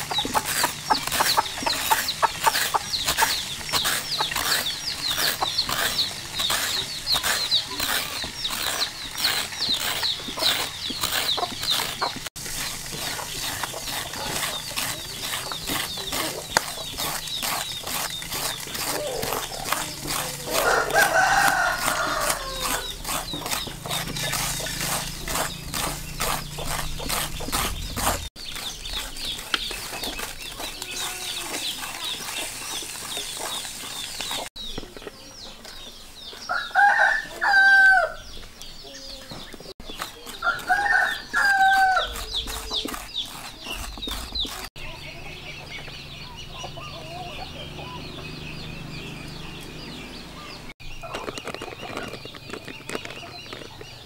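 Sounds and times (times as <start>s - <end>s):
metal scraper shredding pumpkin: 0.0s - 34.5s, 39.8s - 44.9s
rooster crowing: 20.5s - 23.2s, 36.5s - 38.2s, 40.3s - 42.8s.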